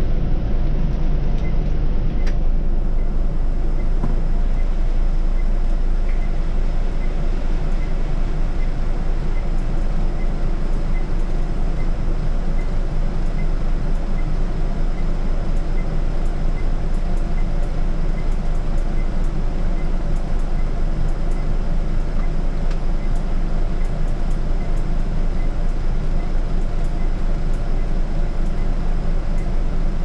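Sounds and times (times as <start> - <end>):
bus engine and road rumble: 0.0 - 30.0
faint regular ticking: 7.0 - 29.6.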